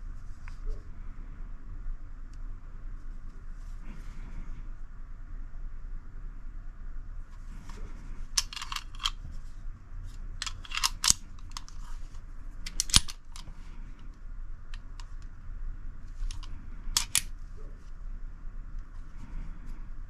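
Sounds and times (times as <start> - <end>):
pistol slide metallic clicks: 8.4 - 9.2, 10.4 - 11.8, 12.6 - 13.5, 16.3 - 17.3.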